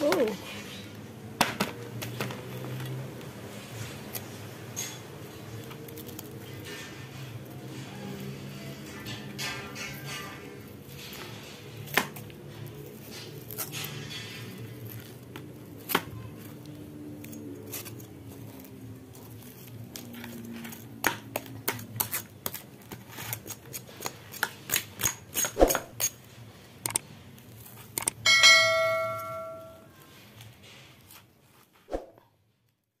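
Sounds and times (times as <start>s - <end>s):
knife scraping: 9.4s - 15.8s, 17.2s - 20.9s, 21.7s - 26.3s
bell chime: 28.3s - 29.8s.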